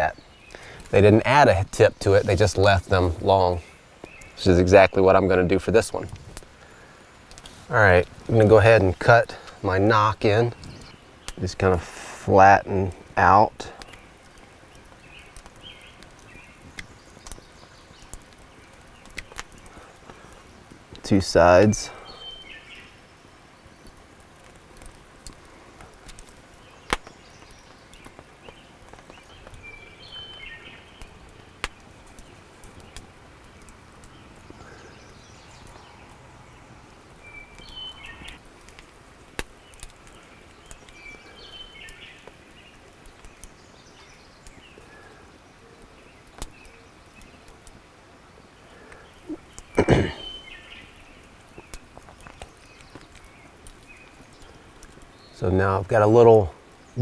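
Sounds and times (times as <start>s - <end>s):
sharp clicks: 13.8s - 20.2s, 23.8s - 29.7s
bird calling: 21.6s - 23.1s, 26.6s - 33.1s, 34.0s - 38.4s, 48.3s - 57.0s.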